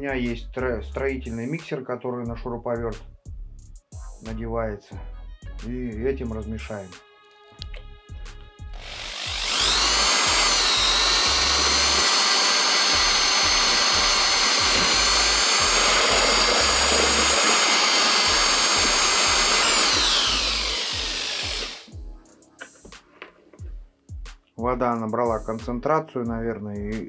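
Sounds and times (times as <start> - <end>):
electric drill motor whine: 8.7 - 21.9.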